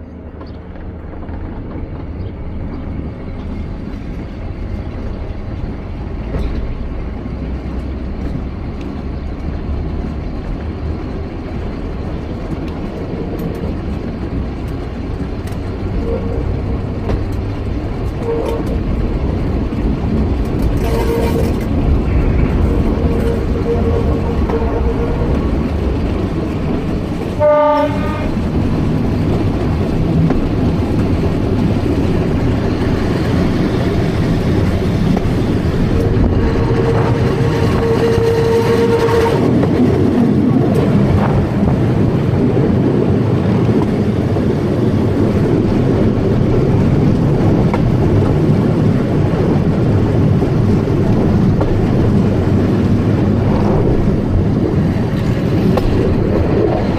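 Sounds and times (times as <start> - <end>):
train wheels rumbling: 0.0 - 56.9
train horn blast: 18.0 - 19.0, 20.6 - 25.7, 27.3 - 28.5, 35.8 - 39.7.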